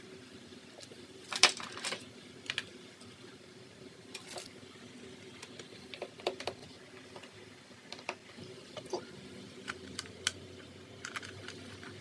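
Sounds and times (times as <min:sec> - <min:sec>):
plastic parts clicking: 0:01.3 - 0:02.7, 0:05.4 - 0:08.2, 0:09.6 - 0:12.0.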